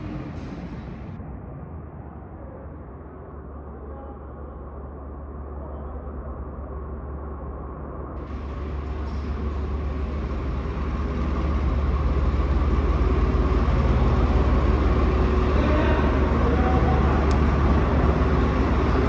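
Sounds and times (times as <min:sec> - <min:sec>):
tractor diesel engine running: 0:08.2 - 0:19.0.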